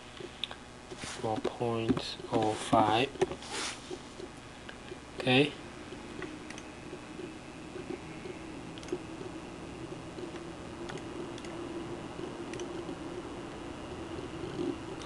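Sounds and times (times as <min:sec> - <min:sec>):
low background hum: 0:00.0 - 0:15.0
computer mouse clicks: 0:06.2 - 0:06.7, 0:07.8 - 0:09.0, 0:10.2 - 0:11.6, 0:12.5 - 0:13.0.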